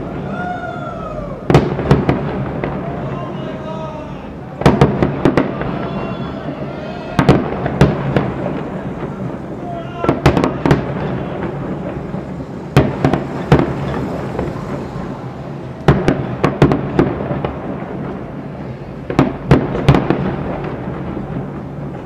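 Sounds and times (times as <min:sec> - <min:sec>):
firework bangs: 0:00.0 - 0:22.0.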